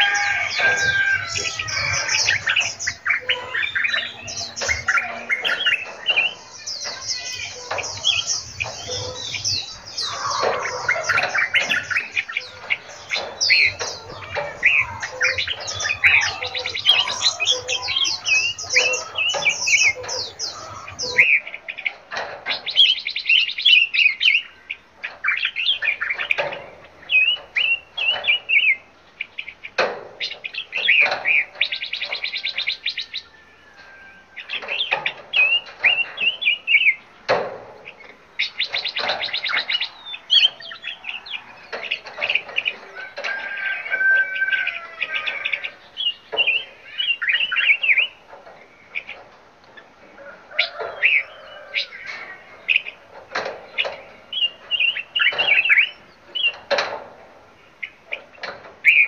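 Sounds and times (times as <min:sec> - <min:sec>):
rapid bird trilling: 0:00.0 - 0:21.7
songbirds chirping: 0:00.0 - 0:59.0.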